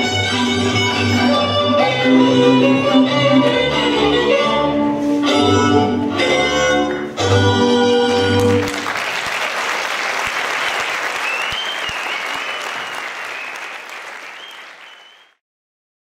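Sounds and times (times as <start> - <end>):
folk string band: 0.0 - 8.8
audience applause: 8.4 - 15.4
high wavering whistle: 10.6 - 15.4.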